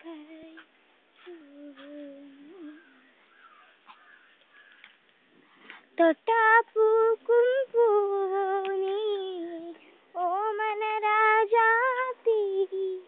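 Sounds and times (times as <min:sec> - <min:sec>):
high voice singing unaccompanied: 0:00.0 - 0:03.2, 0:05.9 - 0:13.0.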